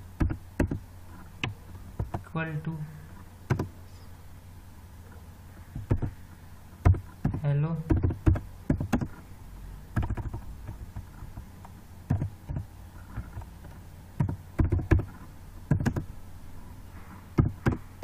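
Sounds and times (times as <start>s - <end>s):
low electrical hum: 0.0s - 18.0s
keyboard keys clicking: 3.5s - 3.7s, 6.8s - 9.2s, 10.0s - 11.5s, 12.1s - 13.5s, 14.2s - 16.1s, 17.4s - 17.9s.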